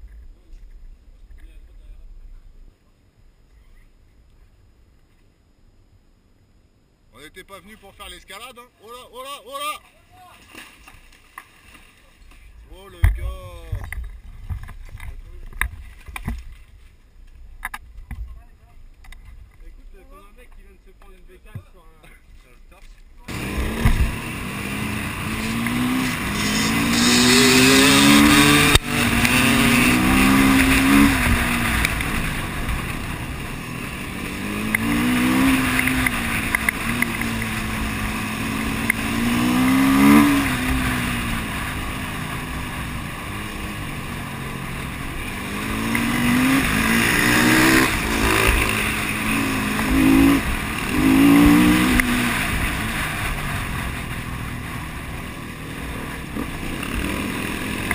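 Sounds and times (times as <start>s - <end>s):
steady rushing noise: 23.2s - 57.9s
dirt bike engine revving: 23.3s - 57.9s.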